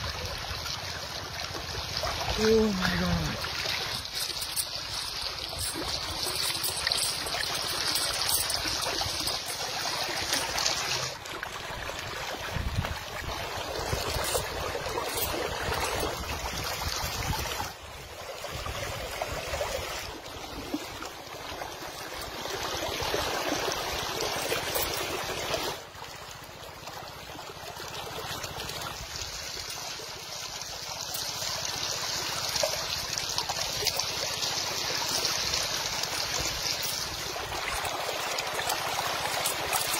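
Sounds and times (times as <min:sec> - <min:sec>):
river water trickling over rocks: 0:00.0 - 0:39.9.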